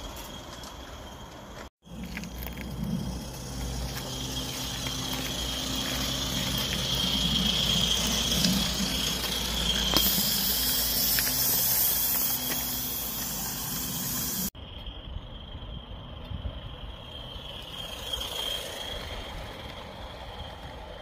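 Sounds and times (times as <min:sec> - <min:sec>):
high-pitched squeal: 0:00.0 - 0:21.0
steam locomotive hissing: 0:03.0 - 0:14.6, 0:16.8 - 0:21.0.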